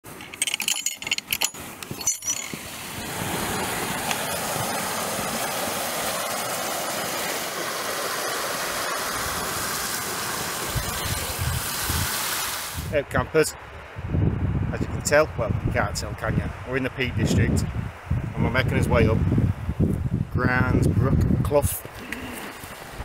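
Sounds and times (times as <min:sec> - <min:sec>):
stream flowing over rocks: 0:00.8 - 0:12.9.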